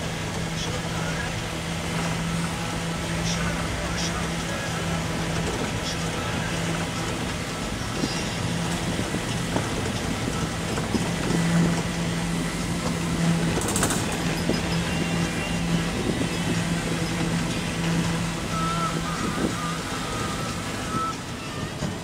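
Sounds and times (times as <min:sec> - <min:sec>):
road and wind noise: 0:00.0 - 0:22.0
vehicle engine hum: 0:00.0 - 0:22.0.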